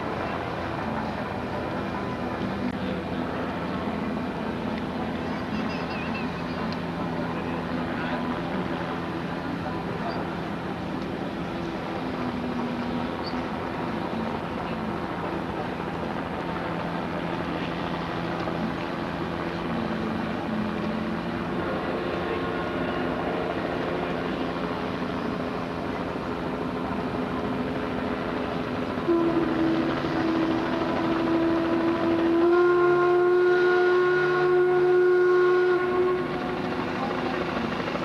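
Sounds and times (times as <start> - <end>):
steam whistle blasts: 29.0 - 36.6.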